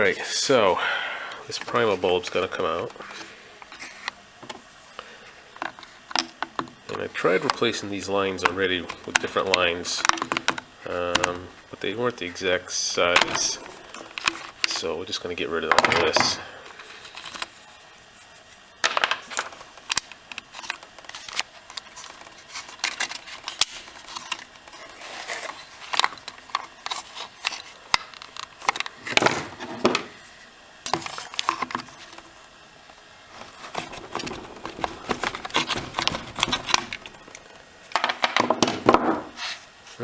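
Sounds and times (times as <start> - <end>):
plastic parts and tubing handled: 5.6 - 12.0, 13.0 - 30.1, 30.9 - 32.6, 33.3 - 39.6.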